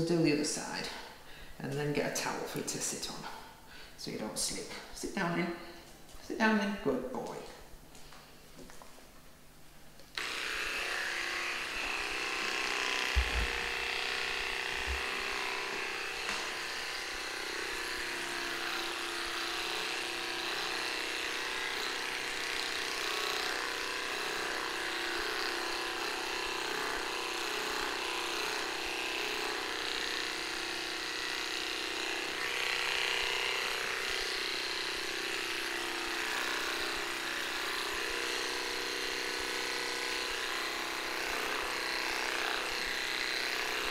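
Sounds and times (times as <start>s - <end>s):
hair clipper buzzing: 10.0s - 43.9s.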